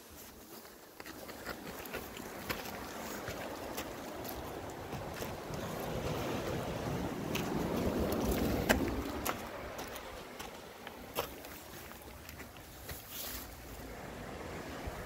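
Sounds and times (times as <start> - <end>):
gravel clicks and scrapes: 0.0 - 13.9
wind rushing over microphone: 2.8 - 11.1, 13.6 - 15.0.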